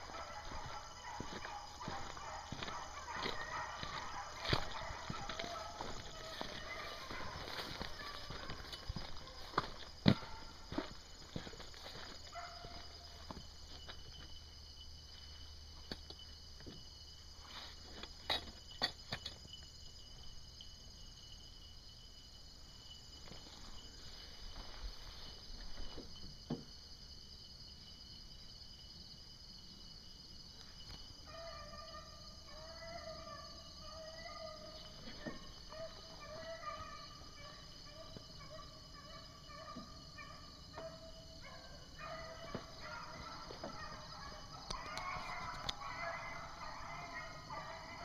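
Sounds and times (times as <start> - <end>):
faint dogs baying: 0.0 - 14.3, 31.2 - 48.0
footsteps on track: 0.0 - 14.3
insects droning: 0.0 - 48.0.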